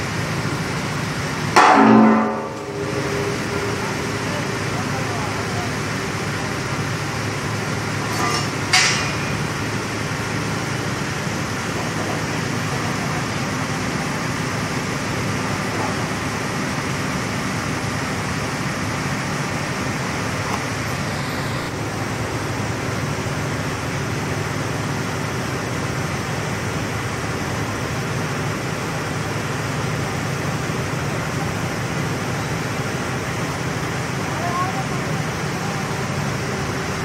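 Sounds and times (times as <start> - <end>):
low hum: 0.4 - 10.3.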